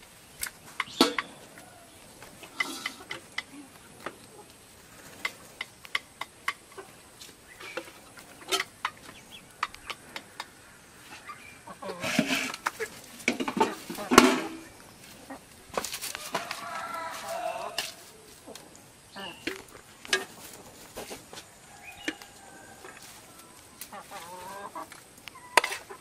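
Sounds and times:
chickens clucking: 0.2 - 26.0.

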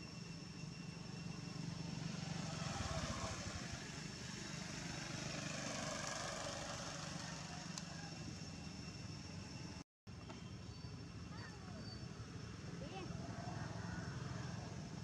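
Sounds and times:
motorbike passing: 1.6 - 8.8, 12.7 - 15.0.

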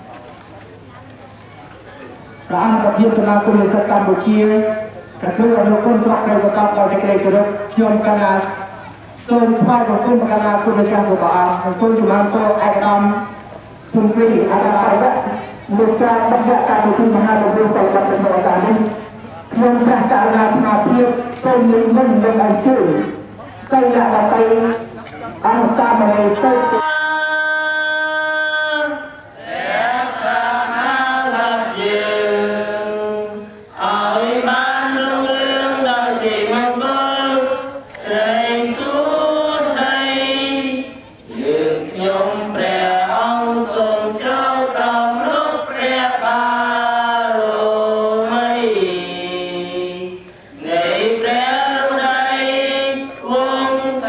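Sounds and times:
voices chanting: 25.6 - 54.0.

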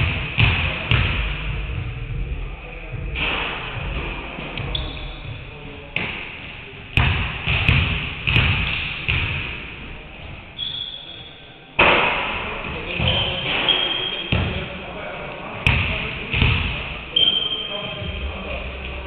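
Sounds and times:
basketballs bouncing on hardwood floor: 0.0 - 1.6, 7.0 - 9.5, 15.7 - 16.8
high squeaks: 10.6 - 11.5, 13.0 - 14.4, 17.1 - 18.2.

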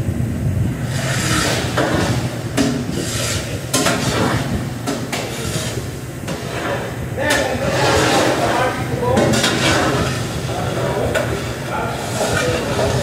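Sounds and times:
exhaust hood drone: 0.0 - 13.0
utensils knocking on steel cookware: 1.4 - 8.4, 9.1 - 10.2.

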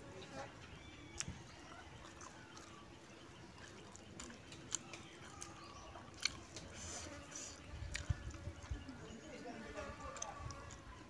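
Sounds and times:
close-up chewing: 0.4 - 11.0
wet mouth clicks: 3.7 - 6.9, 7.8 - 8.4.

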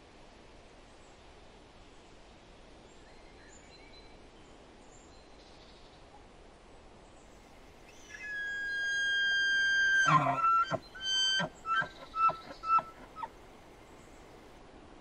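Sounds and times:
elk bugling: 7.9 - 13.4
elk grunting and chuckling: 9.9 - 13.3.

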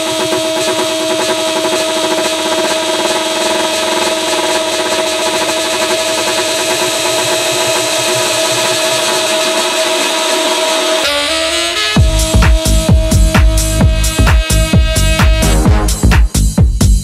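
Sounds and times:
fast mechanical rattle: 0.0 - 11.0
crane drive whine: 0.0 - 11.8.

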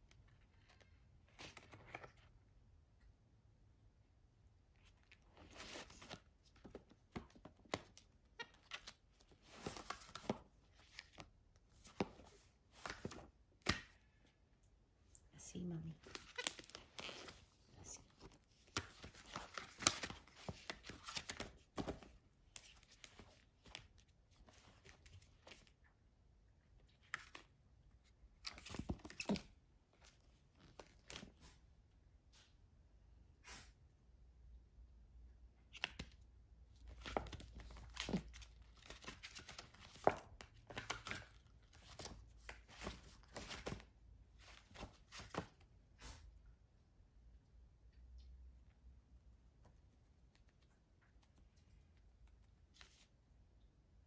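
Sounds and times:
book pages flicking and rustling: 0.4 - 2.4, 4.8 - 14.0, 16.0 - 25.7, 28.4 - 31.6, 36.8 - 45.6, 52.2 - 53.1.

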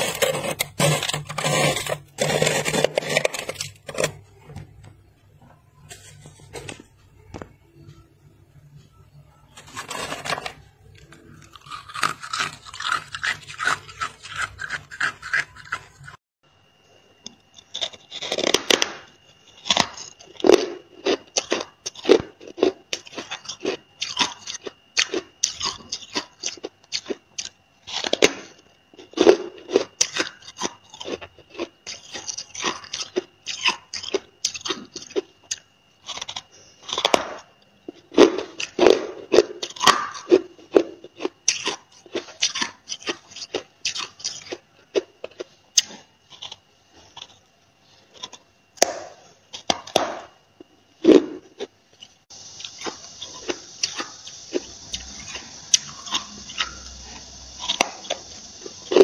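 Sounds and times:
crunchy chewing of frost: 0.0 - 4.2, 9.6 - 16.2, 17.5 - 48.4, 51.0 - 59.0
freezer frost scraping: 0.0 - 4.5, 5.8 - 6.9, 9.5 - 16.2.

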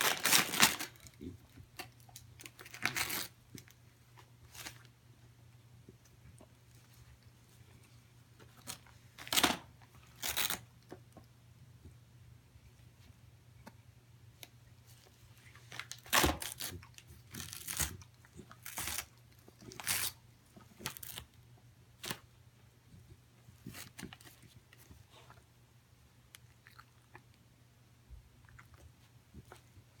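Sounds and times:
dog tearing wrapping paper: 0.0 - 1.2, 1.8 - 3.4, 8.6 - 10.6, 15.6 - 20.2.

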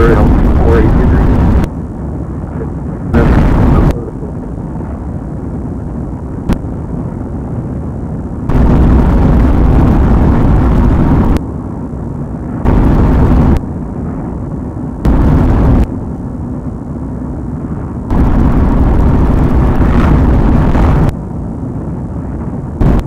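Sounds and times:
steady low rumble: 0.0 - 23.0
loud rushing noise: 18.1 - 21.2.

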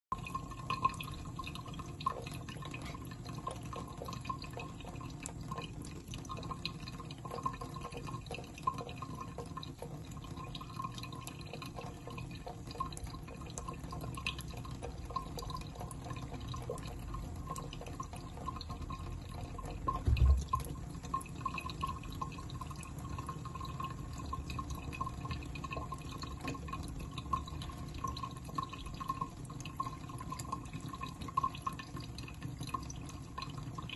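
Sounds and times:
tap water running: 0.1 - 33.9
cats lapping water: 0.3 - 33.9
low thump: 20.0 - 20.7.

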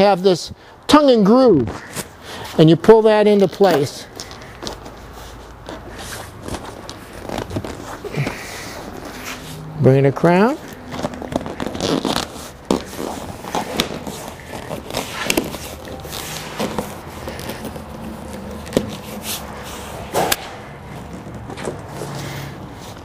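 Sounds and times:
convertible top cover rustling: 3.3 - 20.3.

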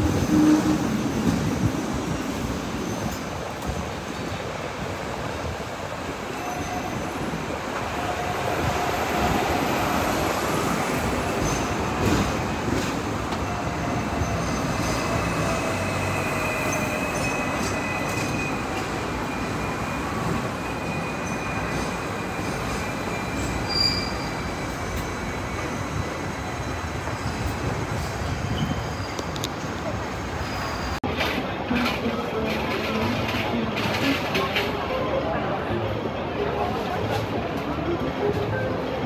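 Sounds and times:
tram wheels rumbling: 0.0 - 39.0
high-pitched wheel squeal: 13.4 - 26.6.

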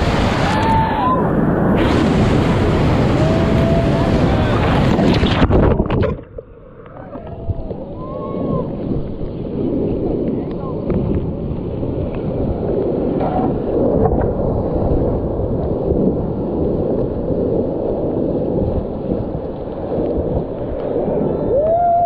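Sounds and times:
whitewater rapids roaring: 0.0 - 5.3.

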